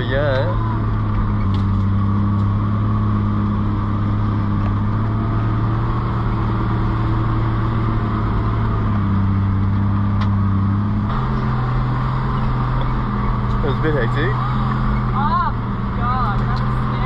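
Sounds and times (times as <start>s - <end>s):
road noise: 0.0s - 17.0s
vehicle engine pulling under load: 0.0s - 17.0s.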